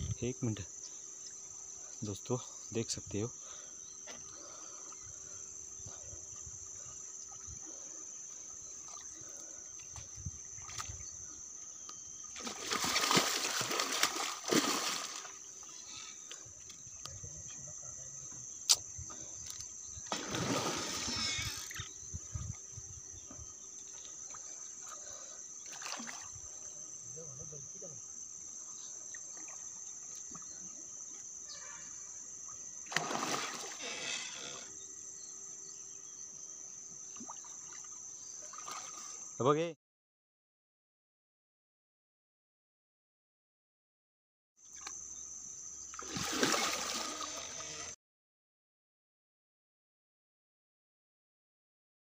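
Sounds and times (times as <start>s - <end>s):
insect chirring: 0.0s - 39.8s, 44.6s - 48.0s
fish splashing at the surface: 12.4s - 15.4s, 20.1s - 21.2s, 32.9s - 33.8s, 37.2s - 39.1s, 46.0s - 47.6s.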